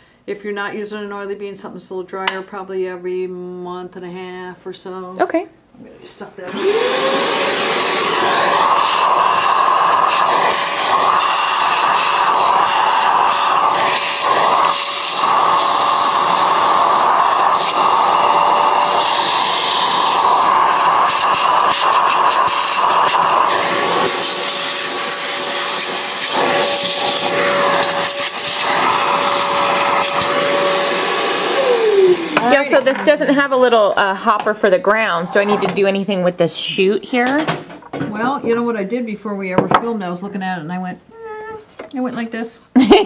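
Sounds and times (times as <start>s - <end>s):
vacuum cleaner running: 6.4s - 34.4s.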